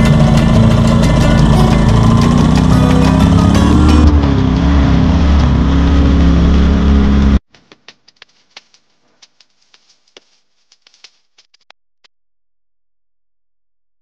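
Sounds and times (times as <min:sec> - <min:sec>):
generator engine running: 0:00.0 - 0:07.4.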